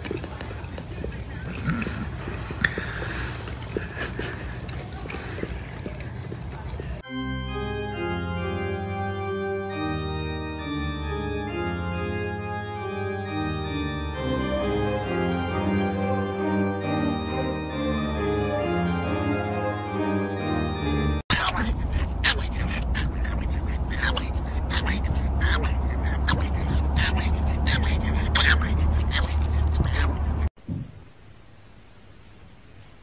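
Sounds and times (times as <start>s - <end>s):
organ playing held chords: 7.0s - 21.2s.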